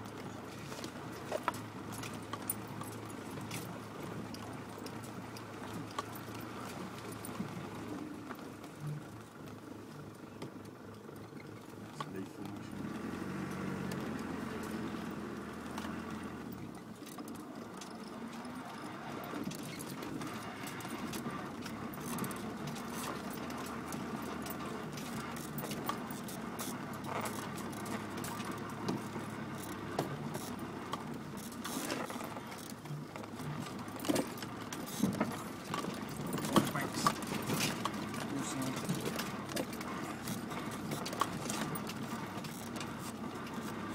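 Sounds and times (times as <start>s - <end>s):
car engine running: 0.0s - 43.9s.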